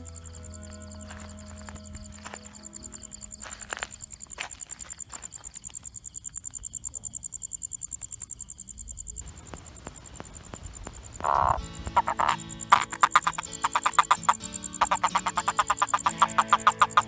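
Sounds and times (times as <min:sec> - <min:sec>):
crickets chirring: 0:00.0 - 0:17.0
rapid pulsed sounds: 0:11.2 - 0:17.0.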